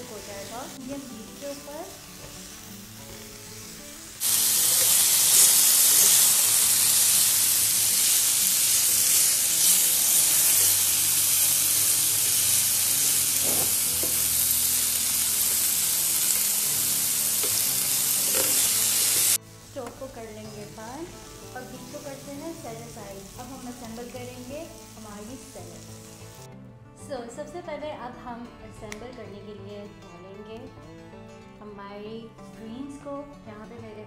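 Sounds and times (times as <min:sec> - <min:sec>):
beef sizzling in a grill pan: 0:00.0 - 0:26.5.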